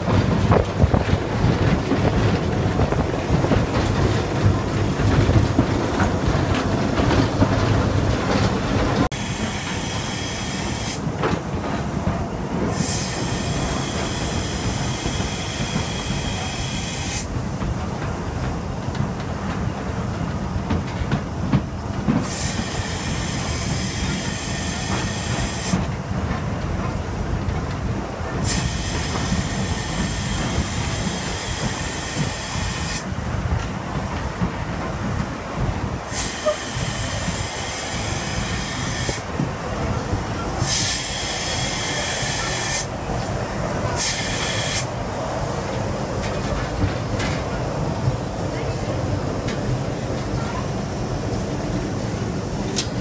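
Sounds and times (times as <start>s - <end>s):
steam locomotive rumble: 0.0s - 53.0s
steam hissing: 2.2s - 11.2s, 12.5s - 17.8s, 22.1s - 25.9s, 28.3s - 33.2s, 35.6s - 53.0s.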